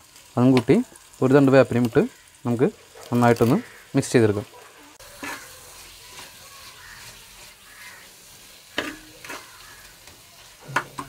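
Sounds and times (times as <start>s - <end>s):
vegetables sizzling in oil: 0.0s - 11.0s
spoon clacking against pot: 8.7s - 11.0s.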